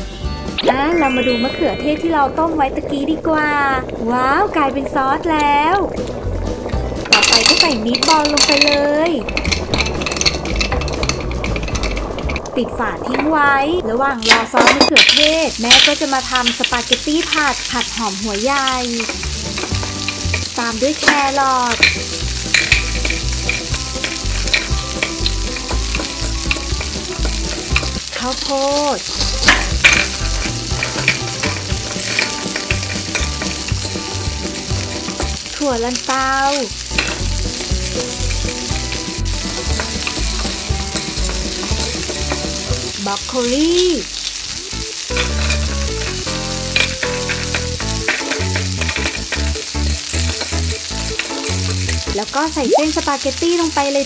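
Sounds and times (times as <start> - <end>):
frying sizzle: 0.0 - 54.0
plastic pieces clicking: 7.0 - 12.6, 45.1 - 52.2.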